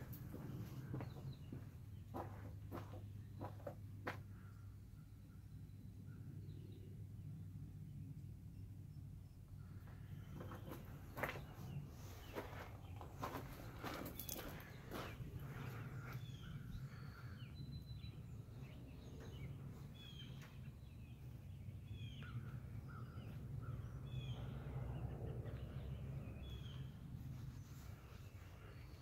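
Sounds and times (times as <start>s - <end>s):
steady low rumble: 0.0s - 29.0s
birds chirping and calling: 10.1s - 27.0s.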